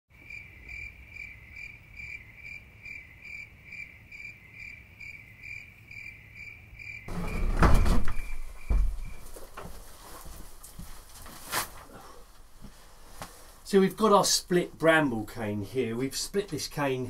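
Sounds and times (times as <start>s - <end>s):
cricket chirping: 0.2s - 9.5s
burst of noise and knocks: 7.1s - 9.2s
heavy thump: 7.1s - 9.8s.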